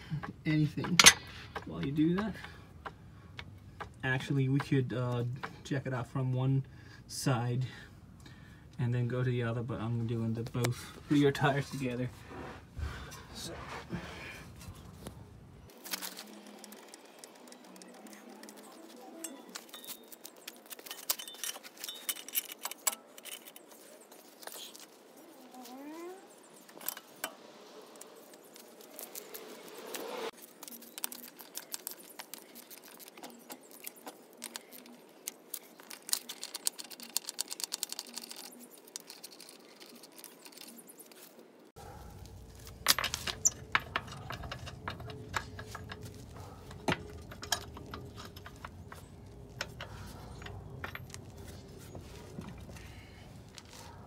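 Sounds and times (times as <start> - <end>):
lug nuts clicking and rattling: 0.2 - 4.8, 41.8 - 53.9.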